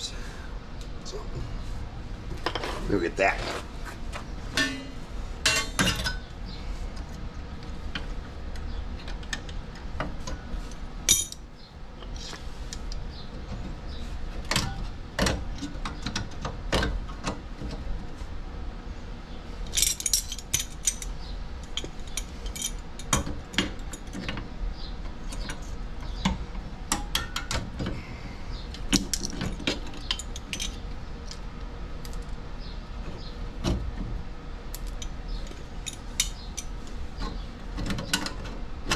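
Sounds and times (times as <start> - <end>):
pliers and metal parts clinking: 11.1 - 11.4, 19.7 - 24.2, 28.9 - 31.4, 34.7 - 36.7.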